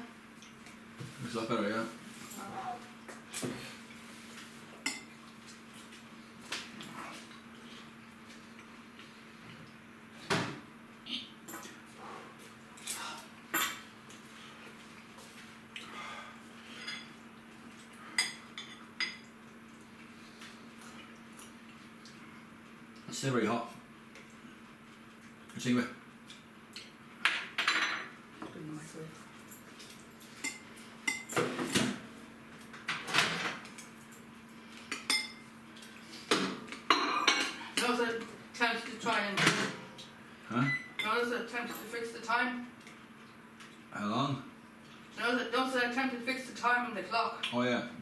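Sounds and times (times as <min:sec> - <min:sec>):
dishes clattering and scraping: 0:27.3 - 0:28.2, 0:30.4 - 0:32.0, 0:36.3 - 0:38.0
dishes clinking: 0:36.9 - 0:37.9.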